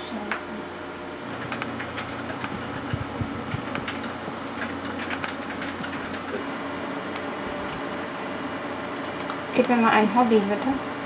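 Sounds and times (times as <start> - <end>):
steady low hum: 0.0 - 11.0
computer keys and buttons clicking: 1.4 - 6.4, 8.8 - 10.7.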